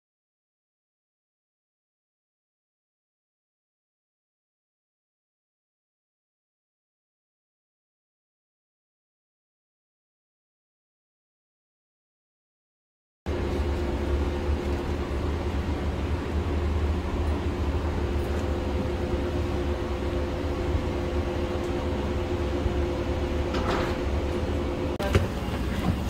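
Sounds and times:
aircraft machinery drone and hum: 13.3 - 26.0.

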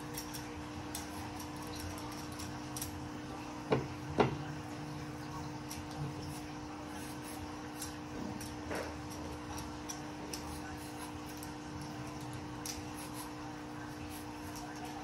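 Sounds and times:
peeler scraping cucumber skin: 7.0 - 13.4.

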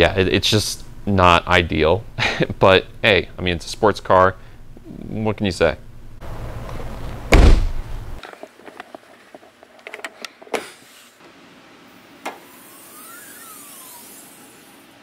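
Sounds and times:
car trunk lid slammed shut: 7.3 - 7.8.

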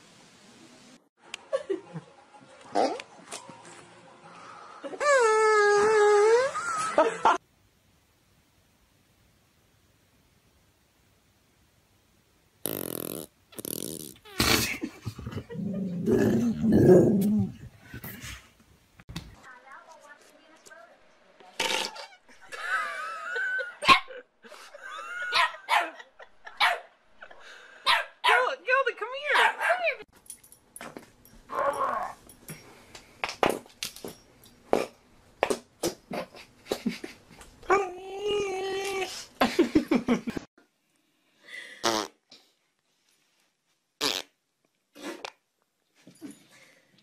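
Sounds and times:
dog farting: 12.6 - 14.8, 21.6 - 22.2, 41.8 - 42.2, 44.0 - 44.4.

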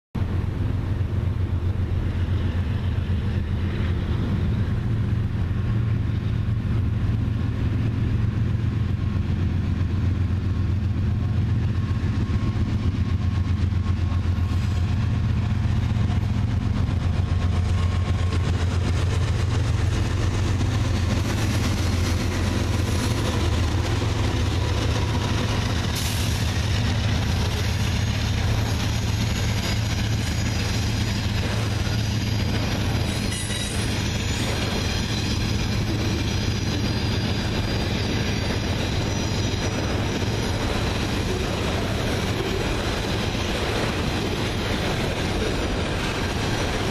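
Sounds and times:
diesel locomotive engine rumble: 0.2 - 46.9
rail noise: 0.2 - 46.9.

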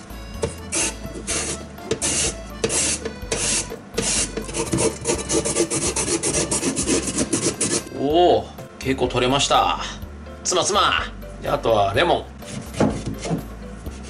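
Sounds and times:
radish scraping over slicer blades: 0.7 - 7.9.

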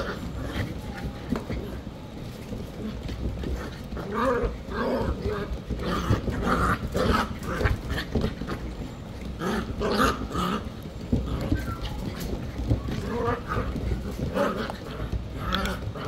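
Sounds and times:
puppies yipping: 11.1 - 14.5.

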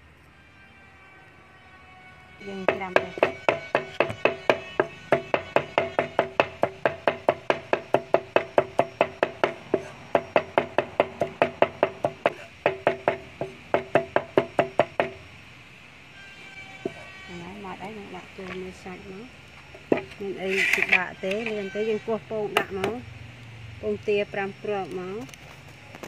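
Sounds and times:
cleaver chopping on wooden board: 2.7 - 15.2.

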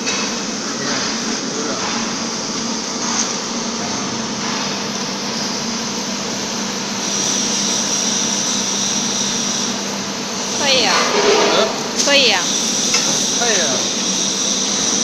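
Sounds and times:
steady high whine: 9.9 - 15.0.

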